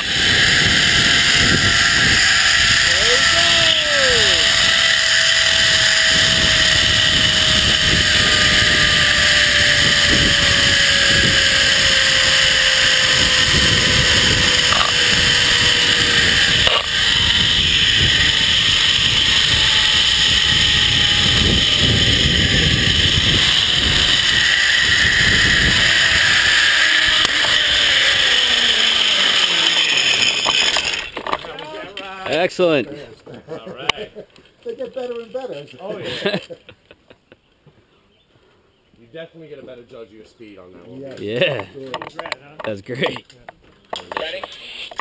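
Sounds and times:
wind rushing over microphone: 0.0s - 28.2s
zipline pulleys whirring on cable: 0.0s - 32.8s, 43.9s - 45.0s.

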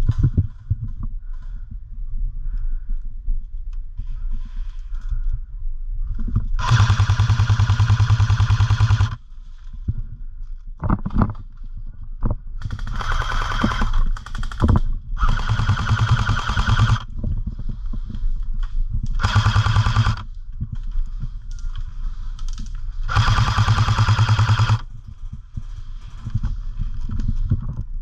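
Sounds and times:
airsoft rifle automatic bursts: 6.6s - 9.2s, 12.6s - 17.1s, 19.2s - 20.3s, 23.1s - 24.9s.

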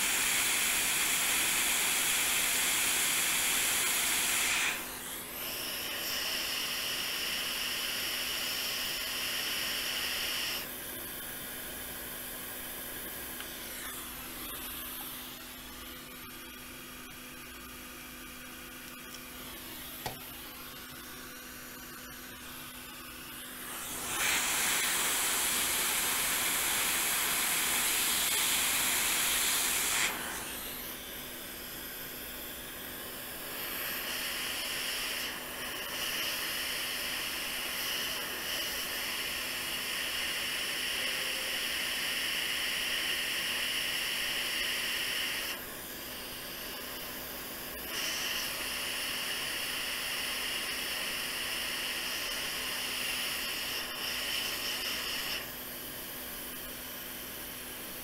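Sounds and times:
hot air rework station hissing: 0.0s - 58.0s.

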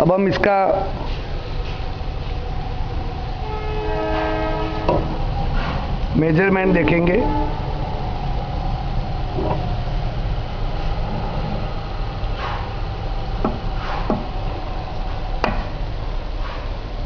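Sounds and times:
glass-grinding machine humming: 2.1s - 15.3s.

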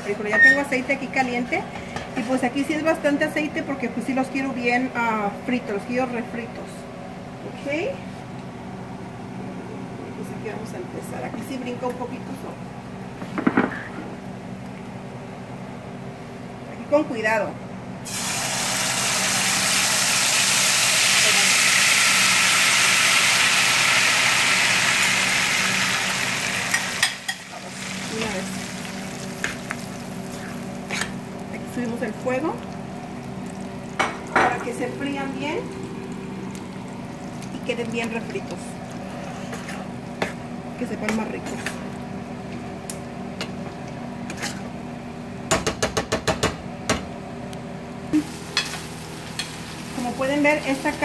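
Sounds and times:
beans sizzling in hot oil: 18.0s - 42.0s, 48.1s - 51.0s.

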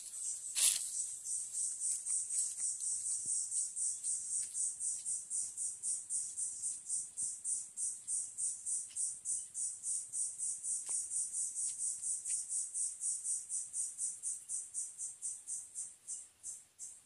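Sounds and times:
insect calling in high pulses: 0.0s - 4.2s.

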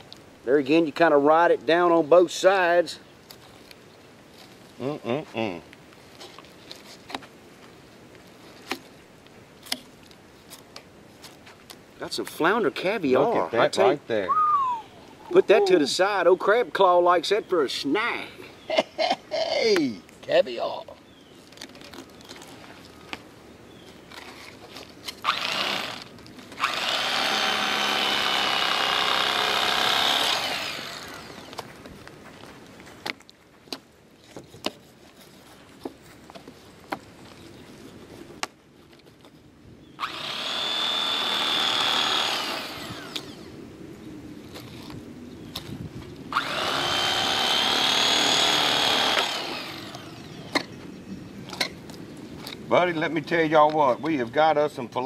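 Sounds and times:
electric fillet knife running: 25.3s - 26.0s, 26.6s - 31.5s, 40.0s - 43.4s, 46.4s - 50.3s
electric motor whine: 25.3s - 31.6s, 40.0s - 43.5s, 46.3s - 50.5s.

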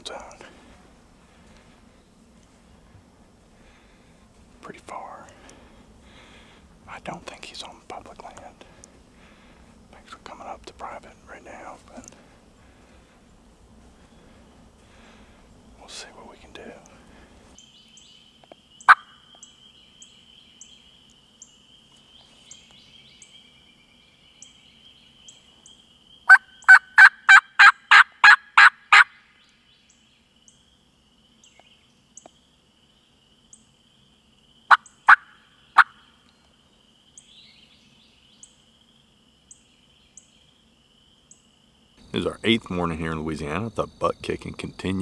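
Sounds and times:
turkey call yelps: 26.3s - 29.2s, 34.7s - 36.0s.

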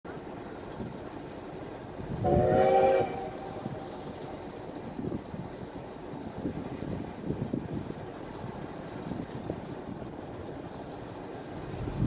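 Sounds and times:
low train rumble: 0.0s - 12.0s
steam locomotive whistle: 2.2s - 3.8s.

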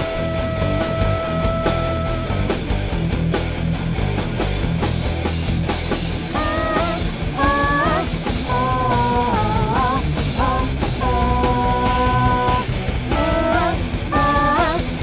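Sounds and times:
bending melody line: 0.0s - 2.6s, 6.2s - 15.0s
distorted guitars: 0.0s - 15.0s
drums: 0.0s - 15.0s
gothic metal music: 0.0s - 15.0s.

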